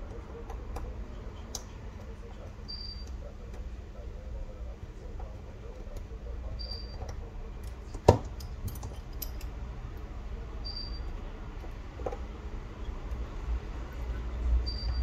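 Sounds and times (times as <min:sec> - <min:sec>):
faint high beep: 0:02.7 - 0:03.1, 0:06.6 - 0:07.0, 0:10.6 - 0:11.1, 0:14.6 - 0:15.0.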